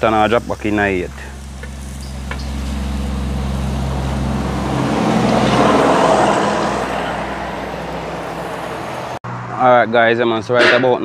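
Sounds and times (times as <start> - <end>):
steady low hum: 0.0 - 5.7
vehicle passing by: 1.4 - 11.0.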